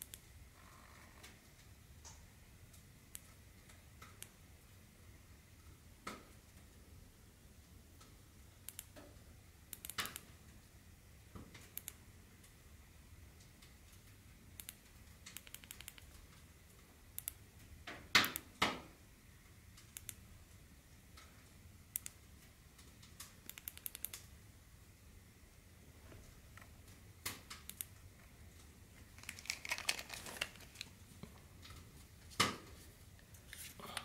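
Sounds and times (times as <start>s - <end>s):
handling sounds: 28.9s - 31.7s.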